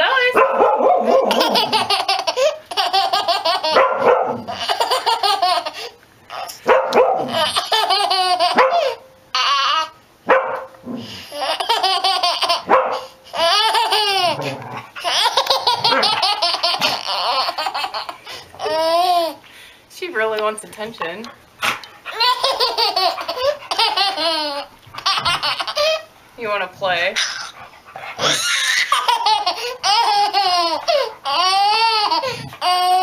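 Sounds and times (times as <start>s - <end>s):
dog barking: 0.4s - 1.4s, 3.7s - 4.5s, 6.7s - 7.4s, 8.6s - 9.0s, 10.3s - 10.7s, 12.7s - 13.1s
baby laughing: 1.1s - 10.0s, 11.2s - 19.4s, 22.0s - 26.1s, 27.2s - 27.6s, 28.2s - 33.0s.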